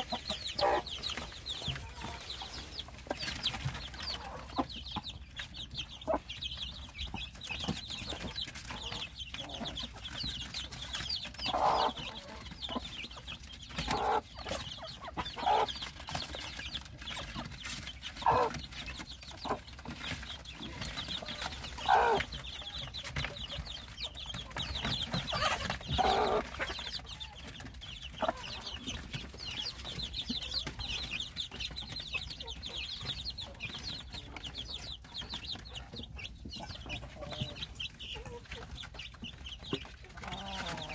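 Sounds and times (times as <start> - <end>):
chicks peeping: 0.0 - 40.9
hen clucking: 0.0 - 40.9.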